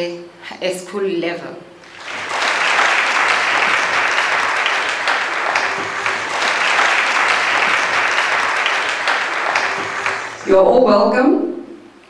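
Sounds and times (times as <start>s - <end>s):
students applauding: 1.8s - 10.6s.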